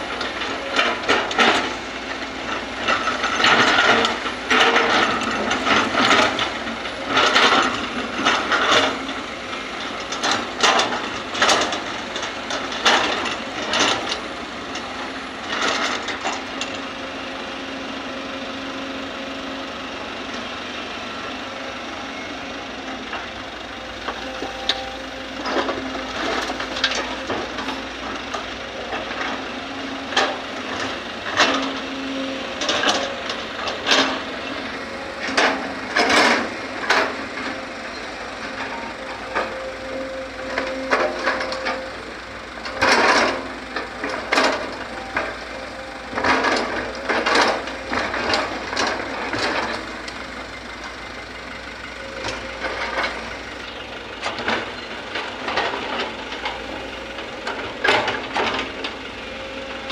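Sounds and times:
excavator engine running: 0.0s - 59.9s.

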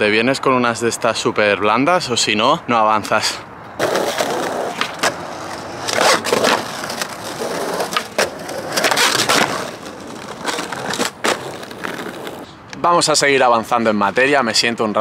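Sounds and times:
skateboard clacks: 3.8s - 12.4s
skateboard wheels rolling: 3.8s - 12.5s.

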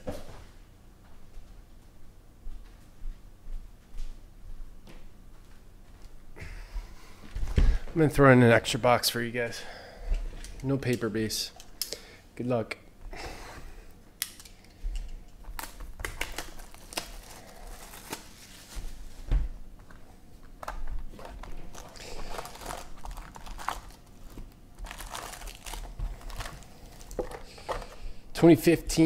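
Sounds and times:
plastic wrap crinkling and tearing: 15.4s - 19.3s, 20.6s - 28.0s
foil packs rustling: 15.6s - 28.2s.

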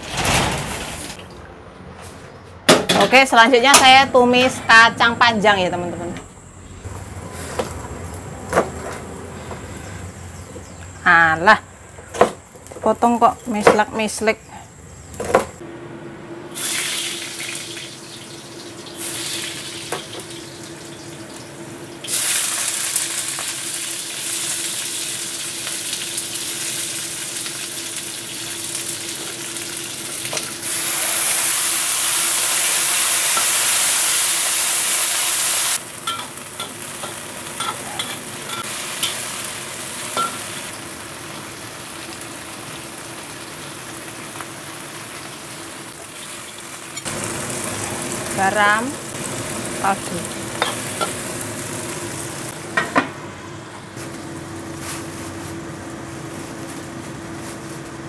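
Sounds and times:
garlic sizzling in hot oil: 16.6s - 52.6s.

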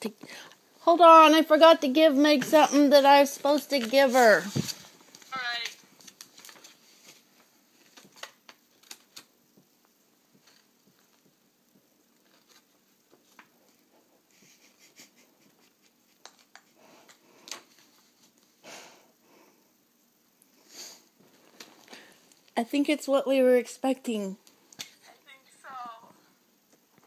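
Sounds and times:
paper rustling and clicking: 3.4s - 9.3s, 12.2s - 13.8s, 16.2s - 18.5s.

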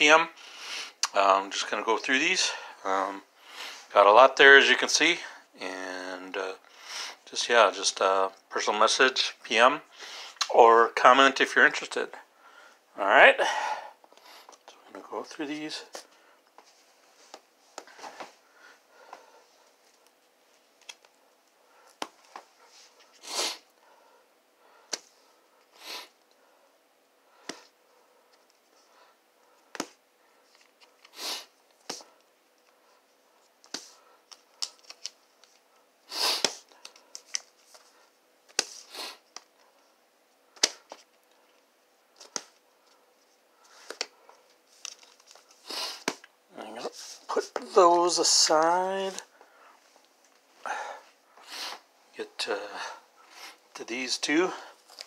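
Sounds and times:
record sleeves flipping and rustling: 33.6s - 39.6s, 43.6s - 49.2s.

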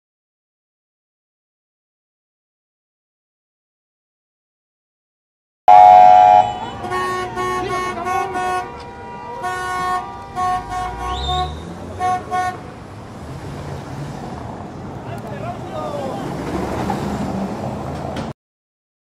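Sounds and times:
siren chirp: 5.7s - 6.7s
vehicle horns honking: 5.7s - 12.7s.

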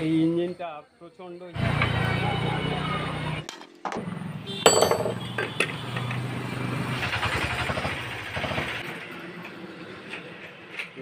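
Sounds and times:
diesel engine chugging: 6.9s - 8.9s.

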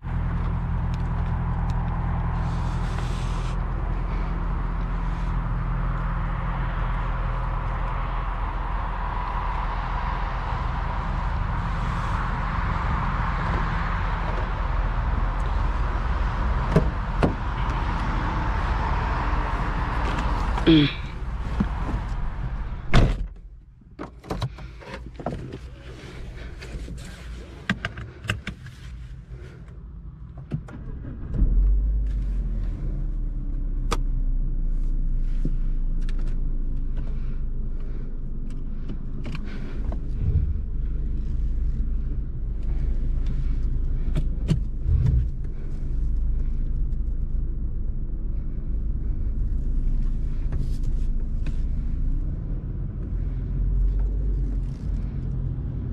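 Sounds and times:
car engine starting and idling: 0.0s - 55.9s
car door shutting: 22.8s - 25.6s
clicks and rustling in car cabin: 22.9s - 32.4s, 35.4s - 40.4s, 42.1s - 47.2s.

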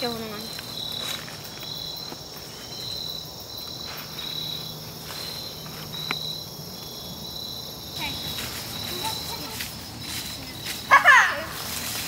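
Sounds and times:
high insect drone: 0.0s - 12.0s
insects shrill chirping: 0.0s - 12.0s.

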